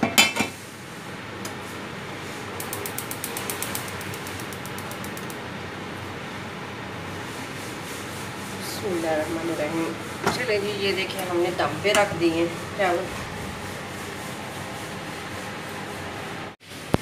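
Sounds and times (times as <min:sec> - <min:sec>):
gas stove igniter clicking: 0:02.6 - 0:05.4.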